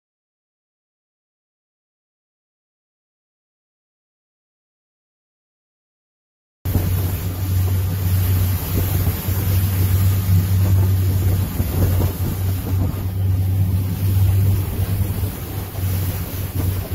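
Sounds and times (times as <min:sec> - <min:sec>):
boat engine drone: 0:06.7 - 0:16.9
water rushing past hull: 0:06.7 - 0:16.9
wind on microphone: 0:06.7 - 0:16.9.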